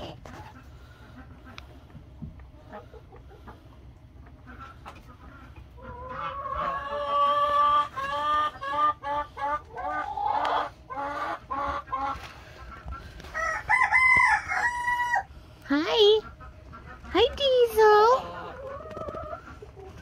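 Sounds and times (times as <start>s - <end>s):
chicken calling and clucking: 0.0s - 20.0s.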